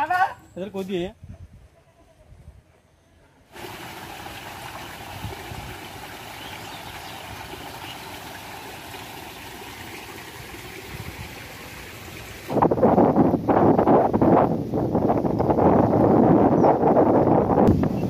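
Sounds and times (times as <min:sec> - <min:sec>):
floodwater running: 0:03.5 - 0:15.8
wind buffeting microphone: 0:03.6 - 0:08.2, 0:10.3 - 0:18.0.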